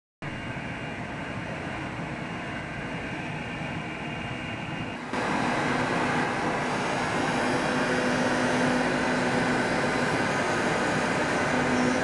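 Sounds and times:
cutting machine whooshing: 5.2 - 12.0.

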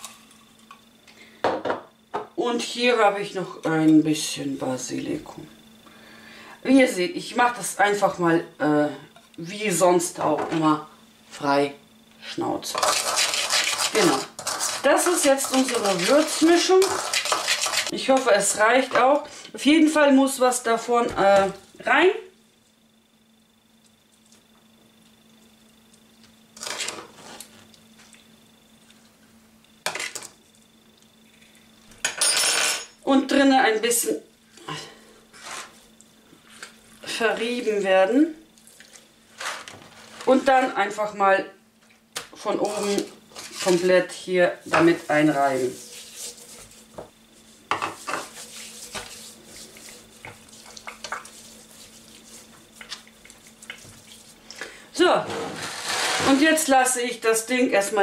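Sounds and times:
faint steady hum: 0.0 - 58.0
hands rubbing skin: 45.1 - 54.4.

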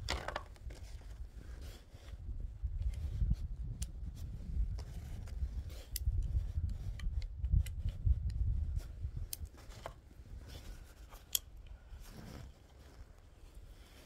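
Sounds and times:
metallic cartridge clicks and scrapes: 5.2 - 8.4, 11.0 - 11.7.

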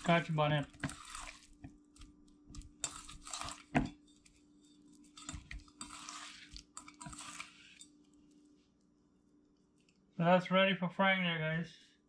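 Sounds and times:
wet squishing of fish in paste: 0.0 - 8.9.

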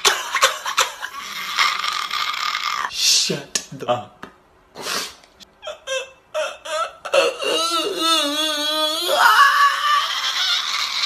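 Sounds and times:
man laughing hard: 0.0 - 2.9.

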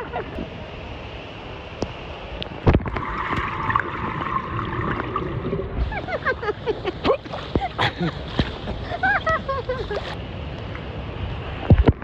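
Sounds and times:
water splash: 2.5 - 8.8
muffled underwater bubbling: 2.6 - 6.2.

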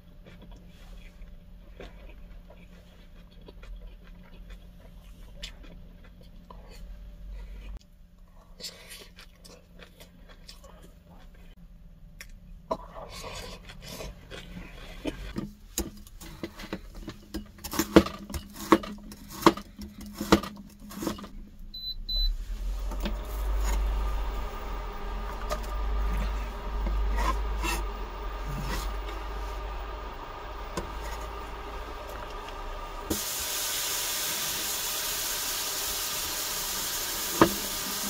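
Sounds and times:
low appliance hum: 0.0 - 38.0
short electronic beeps: 21.7 - 22.4
scraping and rubbing: 22.3 - 32.7.

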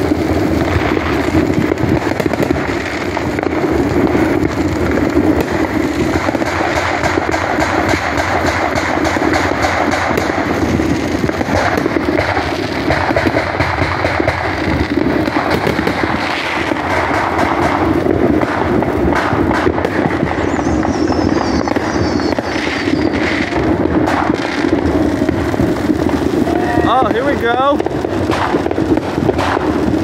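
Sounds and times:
firework crackles and pops: 0.0 - 30.0
firework fountain hissing: 0.0 - 30.0
falling firework whistle: 19.2 - 27.8.

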